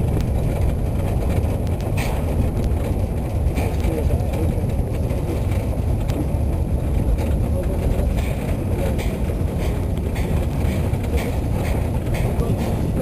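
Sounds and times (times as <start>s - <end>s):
train wagon rumbling on track: 0.0s - 13.0s
wheels clicking on rails: 0.0s - 13.0s
wind buffeting microphone: 0.0s - 13.0s.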